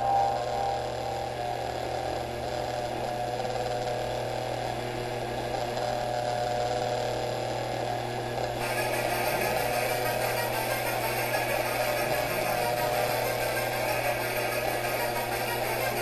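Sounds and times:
faint wavering tone: 0.0s - 4.0s, 8.6s - 16.0s
low electrical hum: 0.0s - 16.0s.

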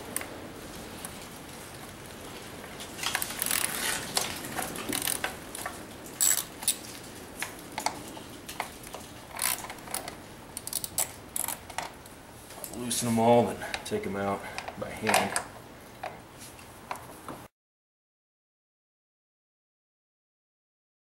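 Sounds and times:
small ratchet clicking: 3.1s - 3.9s, 4.9s - 5.3s, 6.2s - 6.8s, 9.3s - 11.6s
sharp metal clicks: 7.4s - 12.0s.

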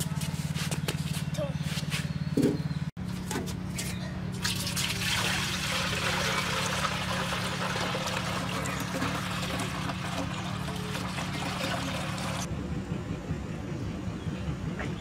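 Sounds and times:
juice pouring into a metal pot: 4.4s - 12.5s.

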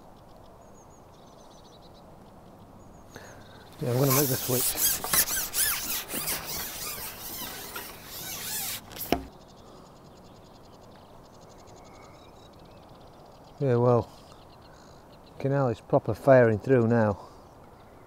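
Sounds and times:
faint outdoor background: 0.0s - 18.0s
high-pitched rubbing squeaks: 3.8s - 9.3s.

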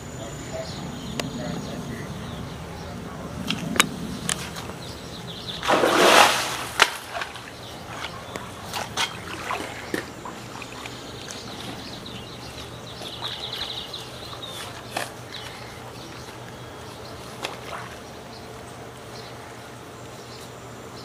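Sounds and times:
splash in water: 5.6s - 11.8s.

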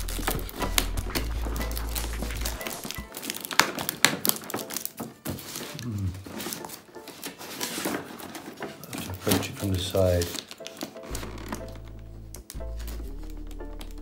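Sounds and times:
knife slicing packing tape: 0.0s - 8.4s
tape crinkling: 0.0s - 14.0s.

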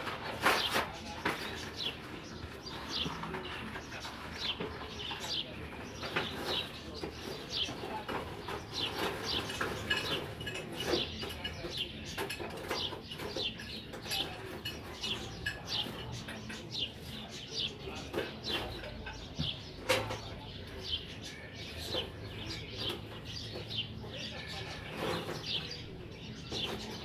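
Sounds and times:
small birds chirping: 0.0s - 27.0s
clinks and knocks: 6.0s - 16.8s, 18.0s - 20.5s.

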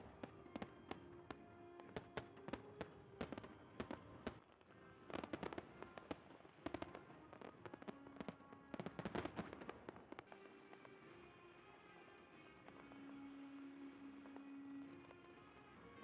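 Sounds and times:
faint music: 0.0s - 16.0s
fireworks bangs: 0.0s - 16.0s.

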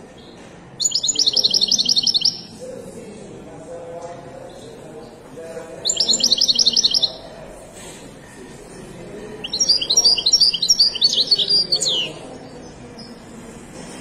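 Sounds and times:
goldfinch twittering song: 0.2s - 2.5s, 5.8s - 7.3s, 9.4s - 13.2s.

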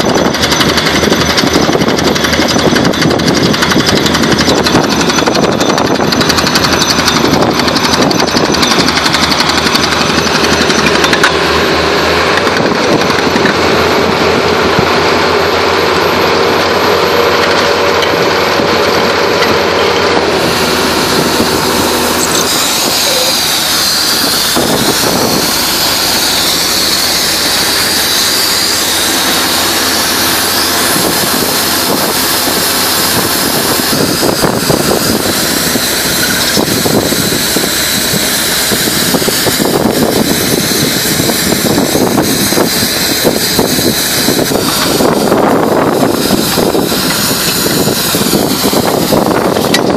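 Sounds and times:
drilling rig engine and compressor: 0.0s - 49.9s.

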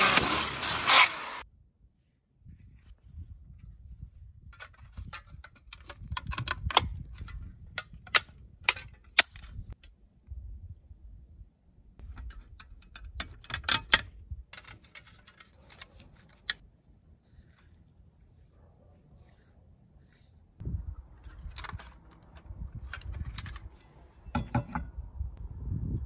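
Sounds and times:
metal parts clinking: 12.2s - 16.6s, 21.2s - 24.9s.

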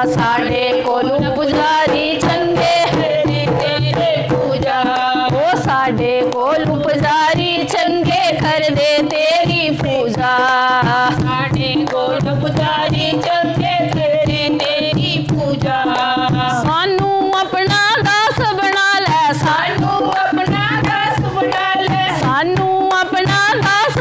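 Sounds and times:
hand drum: 0.0s - 24.0s
women singing together: 0.0s - 24.0s
hand claps: 20.1s - 21.7s.

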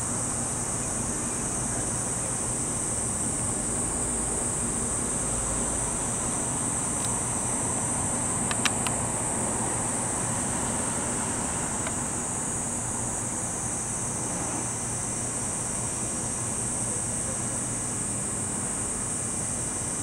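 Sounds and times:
electric railcar hum: 0.0s - 19.6s
cicada drone: 0.0s - 20.0s
sharp clicks: 8.5s - 9.0s.

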